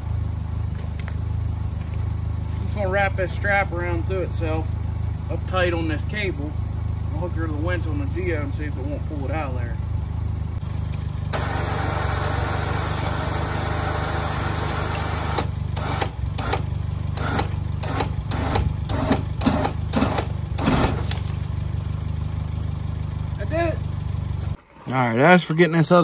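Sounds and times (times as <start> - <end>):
engine idling: 0.0 - 26.0
winch whirring: 11.2 - 21.0
sharp metal knocks and clanks: 16.0 - 21.2.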